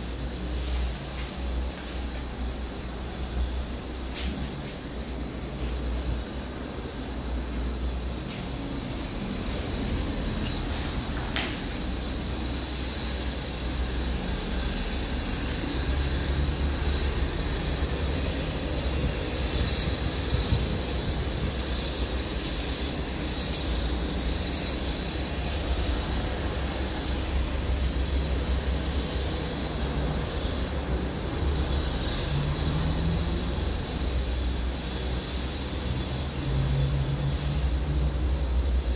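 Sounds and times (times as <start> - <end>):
wind buffeting microphone: 18.8 - 21.6.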